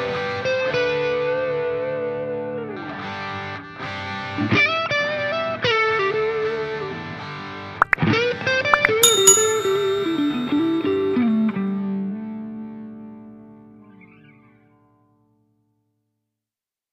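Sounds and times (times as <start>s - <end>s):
electric guitar melody: 8.9s - 11.8s.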